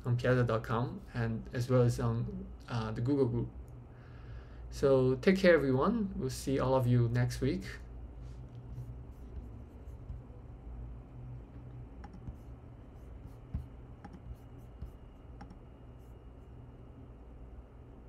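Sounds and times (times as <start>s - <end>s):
steady low hum: 0.0s - 18.0s
mouse and keyboard clicks: 12.0s - 12.4s, 13.5s - 15.6s.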